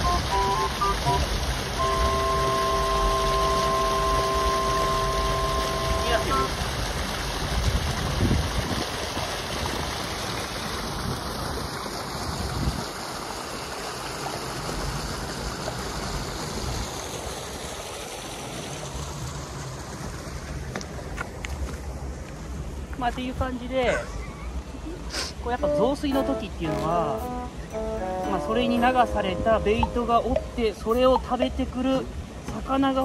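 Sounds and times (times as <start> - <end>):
river water rushing: 0.0 - 12.2, 24.5 - 33.0
wind on microphone: 7.5 - 9.4, 12.2 - 13.0.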